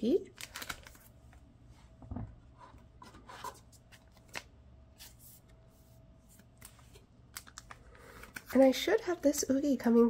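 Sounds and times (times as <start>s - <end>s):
plastic sleeve crinkling: 0.3s - 1.4s, 6.3s - 8.6s.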